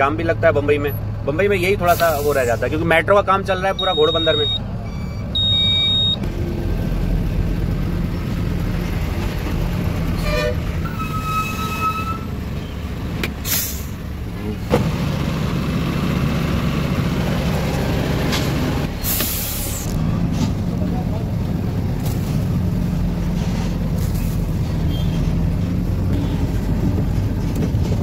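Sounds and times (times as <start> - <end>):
air-brake hisses: 1.9 - 2.8, 13.4 - 14.0, 19.0 - 20.0
truck diesel engine running: 3.6 - 28.0
truck horn: 10.2 - 12.4.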